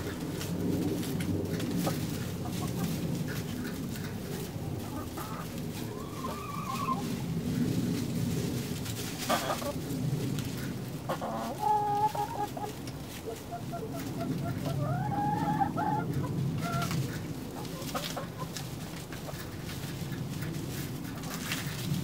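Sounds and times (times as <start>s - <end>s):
drawn-out hen calls: 0.0s - 22.0s
hens clucking: 0.0s - 22.0s.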